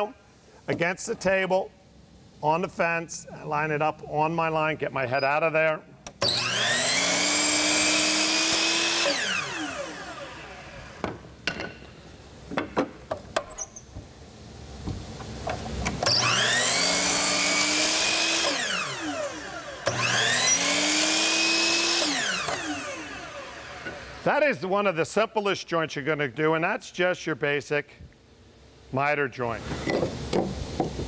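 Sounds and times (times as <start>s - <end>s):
saw blade cutting wood: 6.2s - 10.6s, 16.1s - 24.1s
miter saw motor whine: 6.2s - 11.0s, 16.1s - 24.2s.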